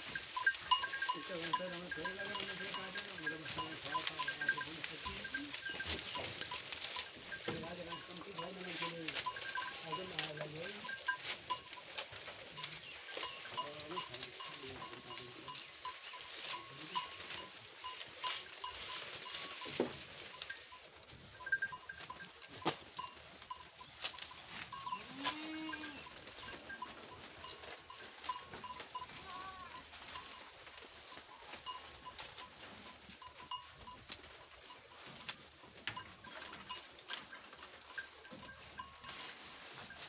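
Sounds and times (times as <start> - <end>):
leaves rustling: 0.0 - 40.0
goat bleating: 24.6 - 29.8.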